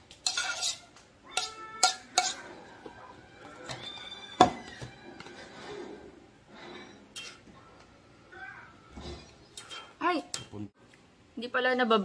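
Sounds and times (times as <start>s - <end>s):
dishes and utensils clattering: 0.2s - 7.9s, 8.9s - 10.6s.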